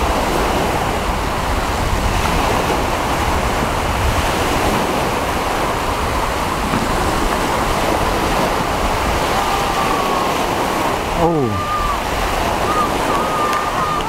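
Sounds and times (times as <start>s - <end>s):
surf and choppy sea: 0.0s - 14.0s
wind noise on microphone: 0.0s - 14.0s.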